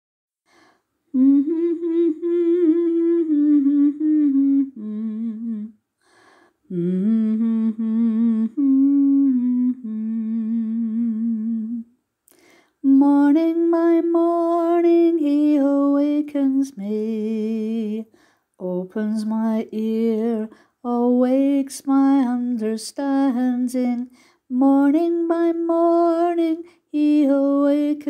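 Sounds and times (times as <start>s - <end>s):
breaths: 0.5s - 1.0s, 6.0s - 6.7s, 12.3s - 12.8s, 18.1s - 18.6s, 20.5s - 20.8s, 24.1s - 24.5s
person humming a slow melody: 1.1s - 5.8s, 6.7s - 11.9s.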